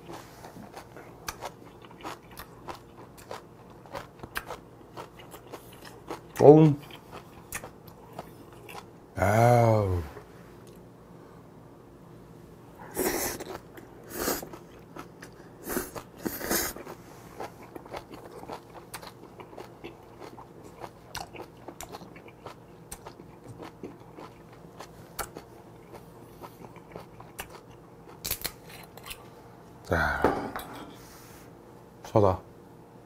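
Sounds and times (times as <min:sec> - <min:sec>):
close-miked wet chewing: 0:00.0 - 0:08.9, 0:13.0 - 0:29.2.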